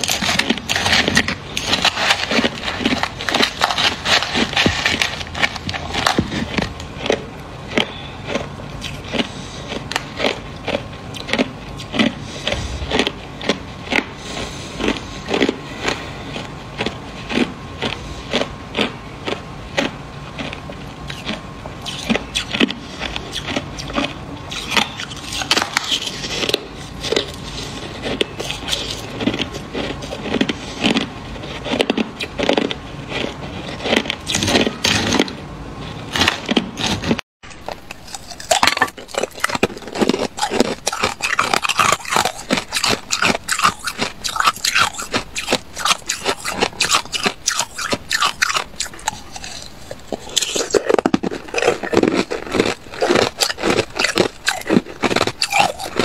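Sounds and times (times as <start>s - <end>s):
plastic spoon scraping ice: 0.0s - 10.4s, 36.1s - 56.0s
ice crunching between teeth: 0.0s - 35.4s, 36.1s - 56.0s.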